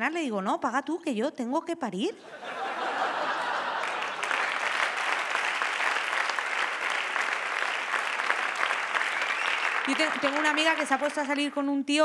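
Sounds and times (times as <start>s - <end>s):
audience applauding: 3.1s - 11.6s.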